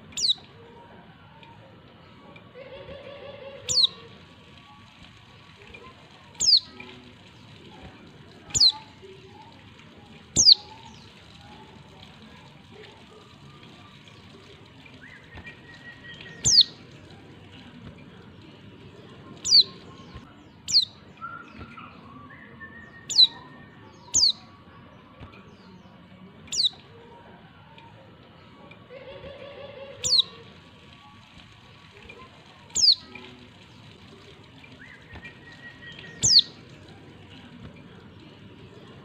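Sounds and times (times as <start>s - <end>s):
faint bird whistles and chirps: 0.1s - 0.5s, 3.7s - 4.0s, 6.4s - 6.8s, 8.5s - 8.9s, 10.4s - 11.5s, 14.9s - 16.8s, 19.4s - 25.7s, 26.5s - 26.9s, 30.0s - 30.4s, 32.7s - 33.2s, 34.7s - 36.6s.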